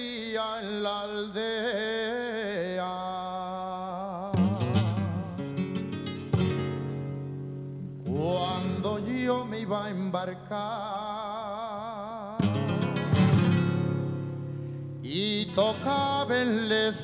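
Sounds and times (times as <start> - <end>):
man singing with vibrato: 0.0 - 6.2, 8.0 - 14.2, 15.0 - 17.0
strummed guitar chords: 4.3 - 10.7, 12.4 - 17.0.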